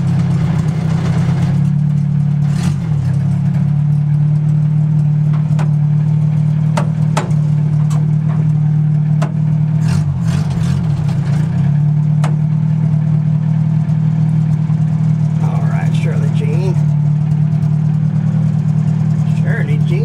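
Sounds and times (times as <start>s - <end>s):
car engine running: 0.0s - 20.0s
clunks and rattles: 6.6s - 9.4s.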